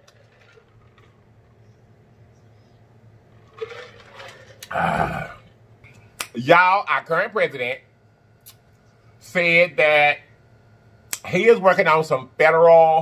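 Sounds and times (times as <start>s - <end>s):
man drinking from plastic jug: 3.6s - 5.5s.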